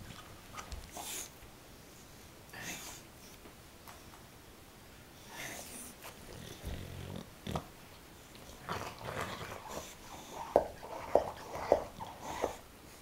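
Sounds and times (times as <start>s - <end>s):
dog noisy breathing: 8.2s - 13.0s
dog gnawing rubber toy: 8.4s - 12.6s.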